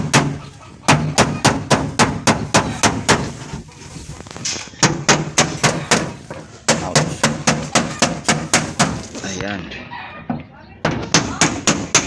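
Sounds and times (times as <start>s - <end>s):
hand tool striking metal panel: 4.8s - 9.1s.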